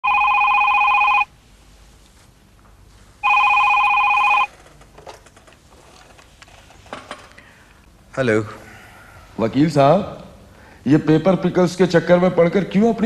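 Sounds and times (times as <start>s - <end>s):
telephone ringing: 0.0s - 1.3s, 3.2s - 4.5s.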